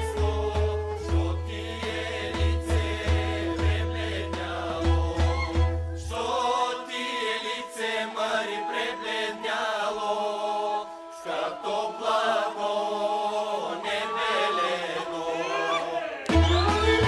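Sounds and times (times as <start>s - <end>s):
folk band with deep bass: 0.0s - 6.5s, 16.2s - 17.0s
choir singing held notes: 0.0s - 17.0s.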